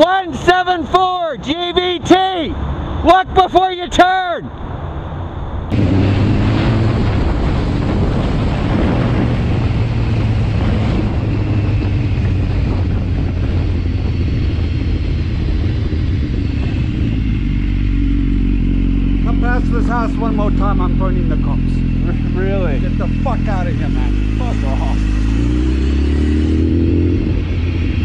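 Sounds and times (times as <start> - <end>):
wind rushing over microphone: 4.5 - 19.8, 21.6 - 28.0
motorcycle engine running: 5.7 - 28.0.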